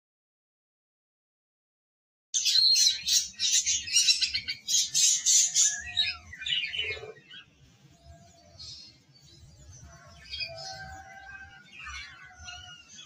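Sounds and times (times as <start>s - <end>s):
budgerigar chirps and squawks: 2.4s - 7.5s.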